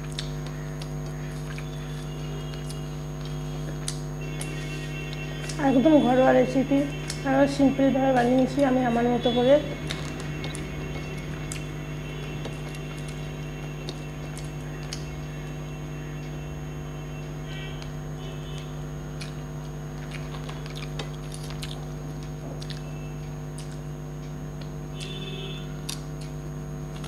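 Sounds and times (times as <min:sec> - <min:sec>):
wet mouth clicks: 0:00.0 - 0:01.7, 0:23.5 - 0:23.9
steady low hum: 0:00.0 - 0:27.0.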